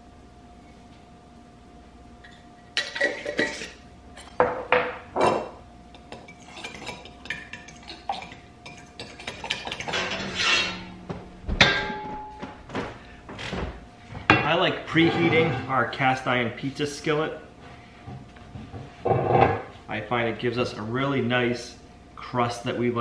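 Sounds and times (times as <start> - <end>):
metal spoon stirring in glass bowl: 6.0 - 10.8.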